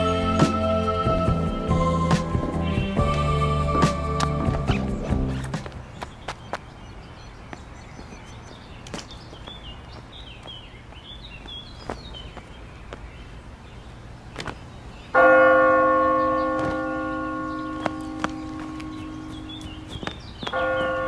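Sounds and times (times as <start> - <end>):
footsteps: 2.1 - 6.8, 7.5 - 13.1, 14.4 - 14.7, 16.4 - 21.0
faint bird chirps: 4.6 - 15.2, 16.1 - 21.0
bell ringing: 15.2 - 19.9, 20.5 - 21.0.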